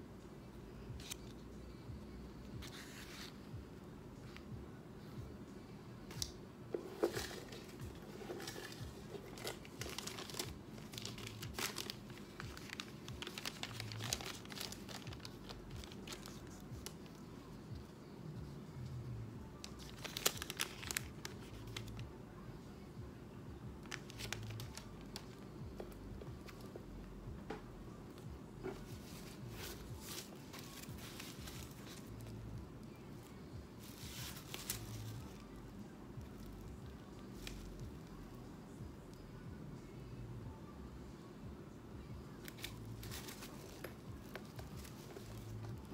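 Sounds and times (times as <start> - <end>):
tissue paper crinkling: 6.8 - 17.2, 19.6 - 22.0, 23.8 - 25.4, 28.6 - 32.4, 33.8 - 35.4, 42.4 - 45.9.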